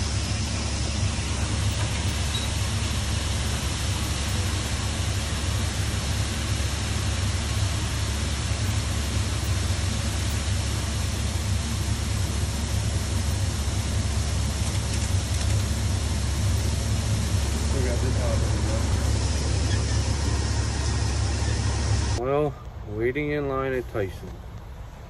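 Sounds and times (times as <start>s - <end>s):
deep machinery hum: 0.0s - 25.0s.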